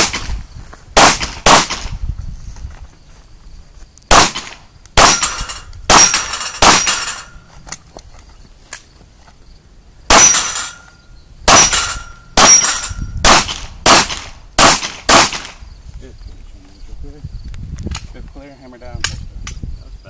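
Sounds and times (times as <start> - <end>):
pistol shots: 1.0 - 1.9, 4.1 - 7.3, 10.1 - 10.8, 11.5 - 15.6
steel targets ringing: 5.0 - 7.5, 10.1 - 13.2.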